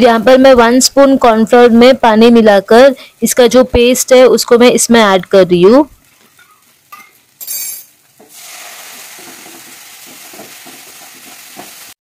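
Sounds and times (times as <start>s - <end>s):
food sizzling in pan: 3.0s - 12.0s
liquid hissing in hot pan: 8.2s - 12.0s.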